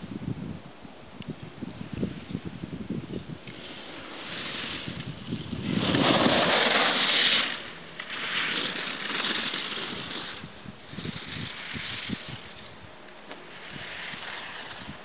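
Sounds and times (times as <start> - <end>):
wind rumbling on microphone: 0.0 - 15.0
skis scraping on snow: 3.4 - 15.0.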